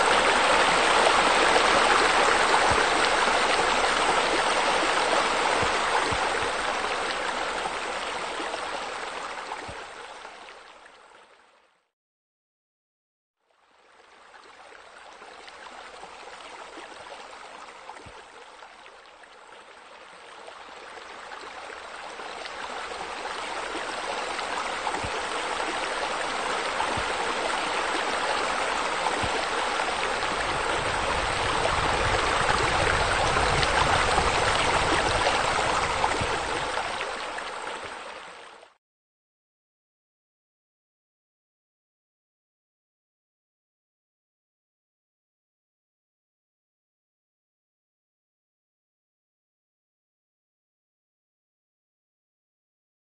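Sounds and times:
waterfall splashing into pool: 0.0s - 7.7s.

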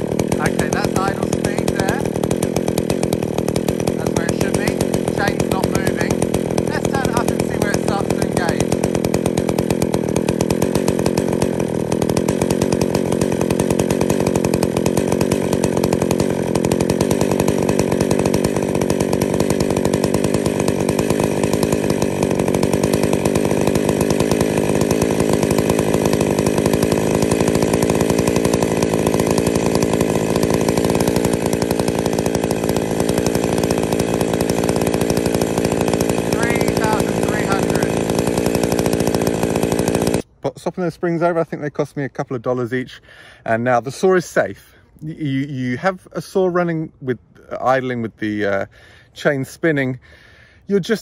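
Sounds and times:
chainsaw engine idling: 0.0s - 51.0s.

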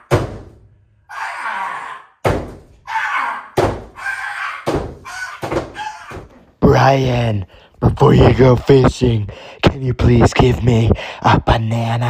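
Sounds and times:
loud thuds echoing in a room: 0.0s - 0.8s, 2.2s - 2.9s, 3.5s - 6.5s.

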